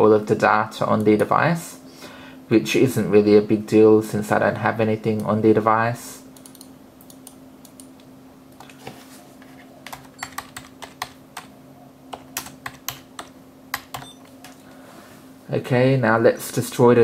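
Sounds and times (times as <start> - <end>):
steady low hum: 0.0 - 17.0
keyboard typing: 6.4 - 8.8, 9.8 - 14.6.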